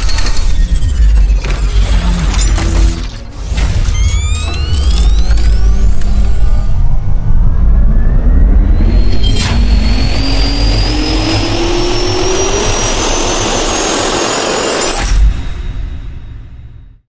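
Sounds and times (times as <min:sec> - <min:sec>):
jet turbine spooling up: 0:00.6 - 0:15.0
sharp hit: 0:08.6 - 0:16.6.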